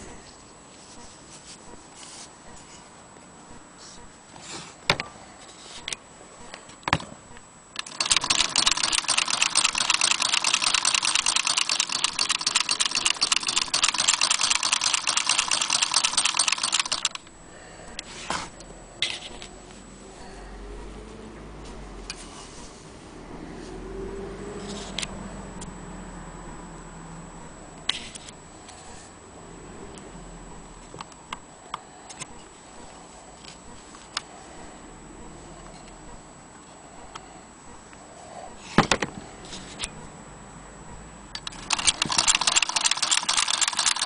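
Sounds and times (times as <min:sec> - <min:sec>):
faint low hum: 0:00.0 - 0:42.0
sewing machine clatter: 0:07.8 - 0:17.2, 0:41.4 - 0:44.0.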